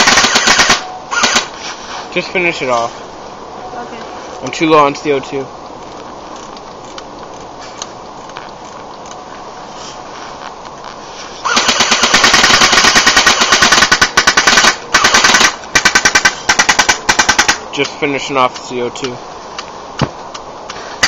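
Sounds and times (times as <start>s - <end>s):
bb gun firing rapid shots: 0.0s - 1.5s, 11.5s - 17.6s.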